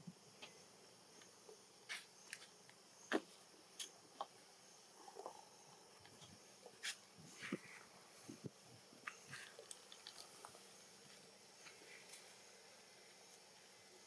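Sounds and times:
faint high hiss: 0:00.0 - 0:14.0
faint clicks and ticks: 0:09.0 - 0:12.3.

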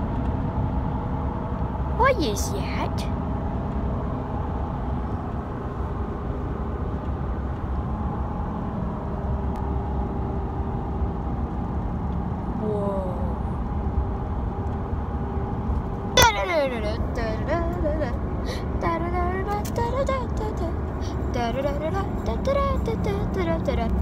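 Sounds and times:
engine and road rumble in car: 0:00.0 - 0:24.0
droning tones: 0:07.7 - 0:24.0.

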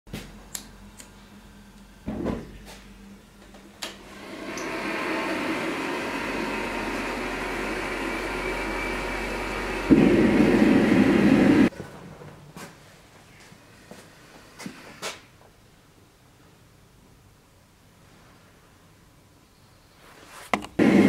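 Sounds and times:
gas burner rushing: 0:03.8 - 0:11.7, 0:20.8 - 0:21.0.

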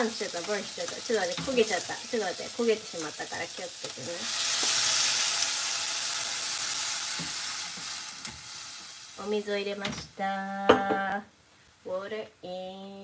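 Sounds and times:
water hissing in hot oil: 0:00.0 - 0:09.5.

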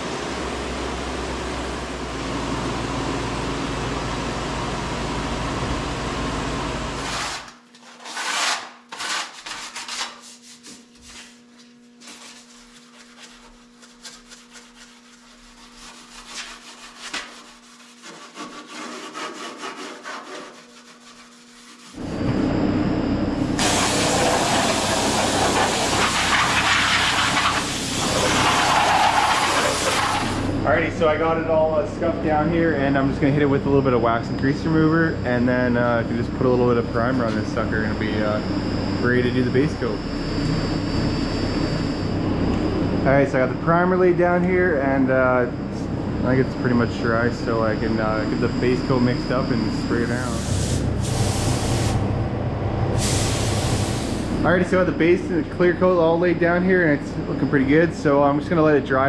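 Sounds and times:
abrasive rubbing on metal: 0:08.0 - 0:22.0
steady low hum: 0:09.5 - 0:59.0.

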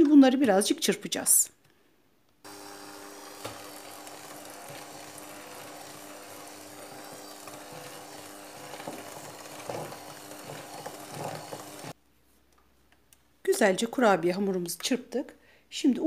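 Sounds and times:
beaters knocking and scraping bowl: 0:02.5 - 0:12.0
electric hand mixer running: 0:02.5 - 0:12.0.

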